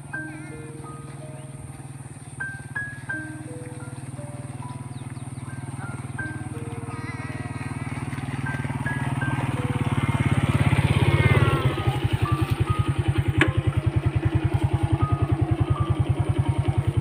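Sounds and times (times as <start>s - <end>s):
small motorcycle engine idling: 0.0s - 17.0s.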